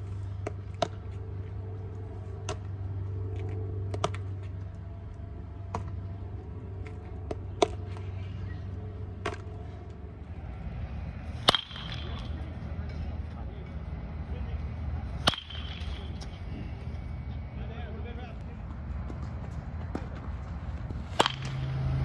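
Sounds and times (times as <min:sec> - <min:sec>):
steady low hum: 0:00.0 - 0:22.0
baseball hitting pavement and glove: 0:00.2 - 0:10.4, 0:11.2 - 0:13.8, 0:14.6 - 0:16.8, 0:18.7 - 0:22.0
loud crack: 0:11.4 - 0:12.4, 0:15.2 - 0:16.3.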